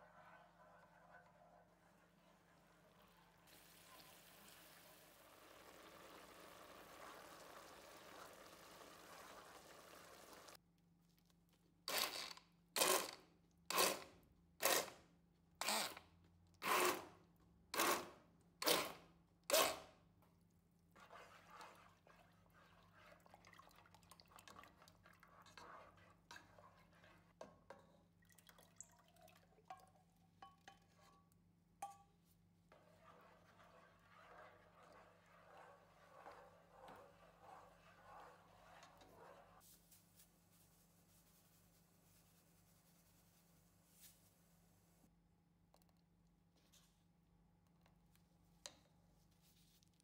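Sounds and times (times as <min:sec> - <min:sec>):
tongs stirring thick soup: 0:20.8 - 0:28.0, 0:30.4 - 0:39.6.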